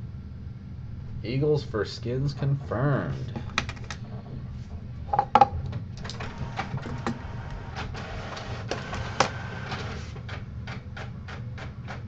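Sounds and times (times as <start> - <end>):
printer hum: 0.0 - 12.0
printer clicking: 2.4 - 4.4, 5.4 - 12.0.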